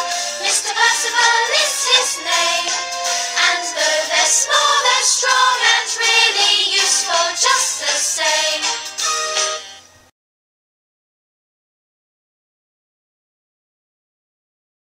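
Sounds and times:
song with voices singing: 0.0s - 9.6s.

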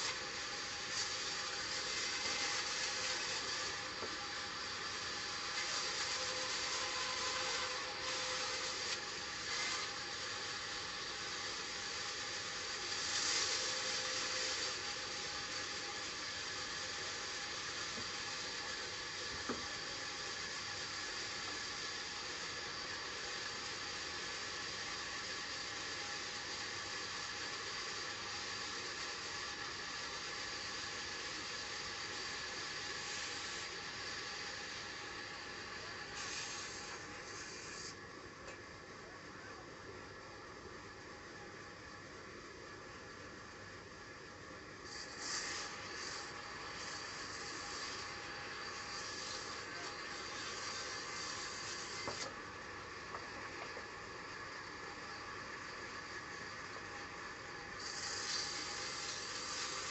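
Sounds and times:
band saw cutting log: 5.2s - 10.2s, 46.9s - 52.3s.

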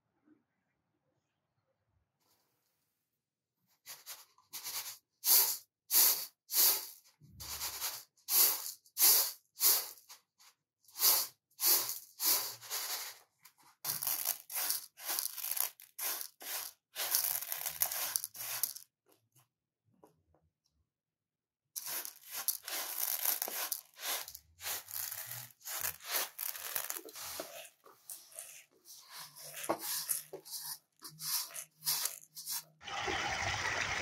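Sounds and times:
rice rattling on metal tray: 11.0s - 13.2s, 13.8s - 18.8s, 21.8s - 32.8s.

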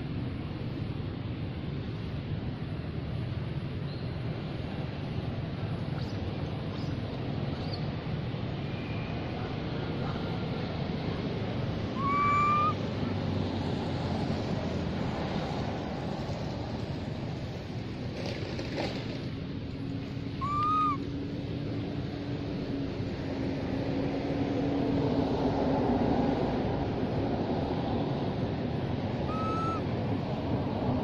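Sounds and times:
baby monkey coo calls: 12.0s - 12.8s, 20.4s - 21.0s, 29.2s - 29.9s.

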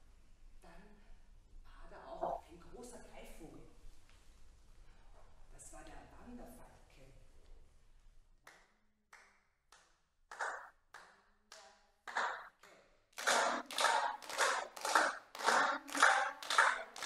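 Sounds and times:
people clapping hands in rhythm: 8.4s - 17.0s.

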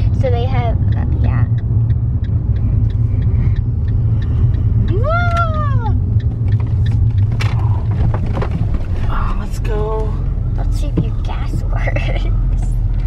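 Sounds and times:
car engine and road rumble: 0.0s - 13.0s
light regular ticks: 0.2s - 8.9s.

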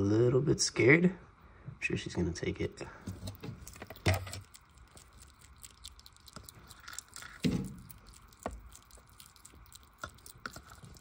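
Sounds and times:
hedgehogs chewing crunchily: 3.2s - 11.0s.

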